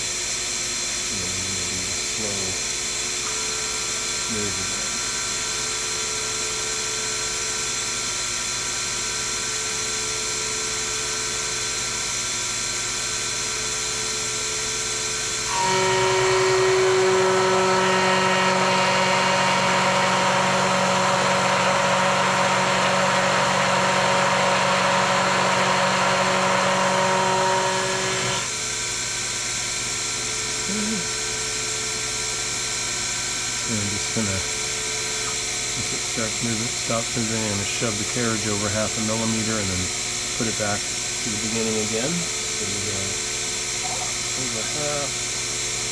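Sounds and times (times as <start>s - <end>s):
cutter milling brass: 15.3s - 28.8s, 33.3s - 43.3s
mill spindle whining: 15.4s - 28.6s.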